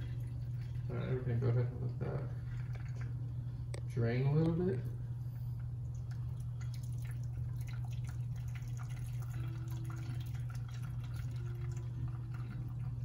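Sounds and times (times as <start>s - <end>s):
steady low hum: 0.0s - 13.0s
liquid dripping and splashing: 5.8s - 13.0s.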